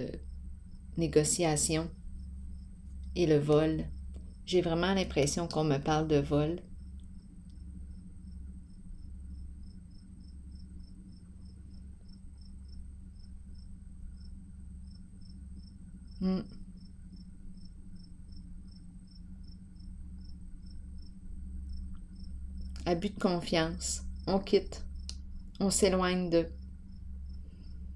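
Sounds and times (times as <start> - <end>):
steady low hum: 0.0 - 27.9.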